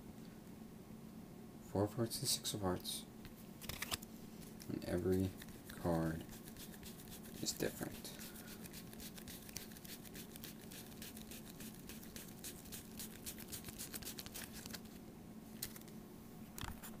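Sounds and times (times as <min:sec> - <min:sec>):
steady low hum: 0:00.0 - 0:17.0
playing cards rustling and clicking: 0:03.6 - 0:15.0, 0:15.6 - 0:16.0.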